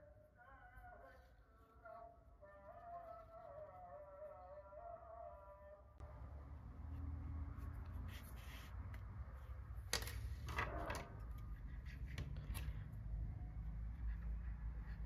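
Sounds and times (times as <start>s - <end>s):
low background hum: 5.9s - 15.0s.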